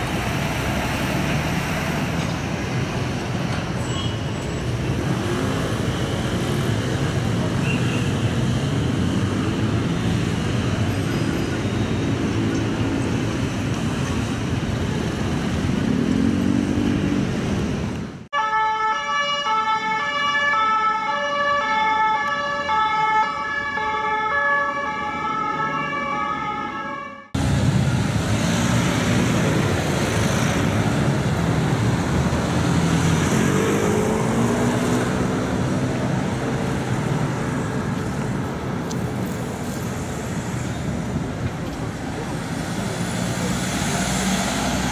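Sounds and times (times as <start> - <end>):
street traffic: 0.0 - 44.9
two-tone police siren: 18.4 - 27.4.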